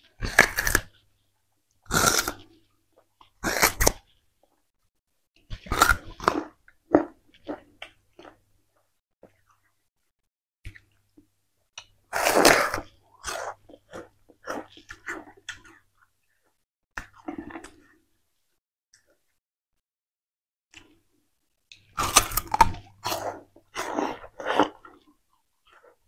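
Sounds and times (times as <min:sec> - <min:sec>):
sugarcane chewing crunches: 0:00.0 - 0:01.0, 0:01.8 - 0:02.6, 0:03.2 - 0:04.1, 0:05.5 - 0:08.4, 0:21.9 - 0:25.2.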